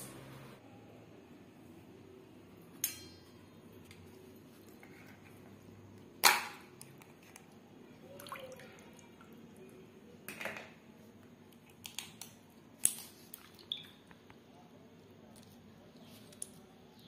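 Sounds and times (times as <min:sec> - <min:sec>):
water splashing and dripping: 0:08.0 - 0:09.4, 0:13.3 - 0:14.1.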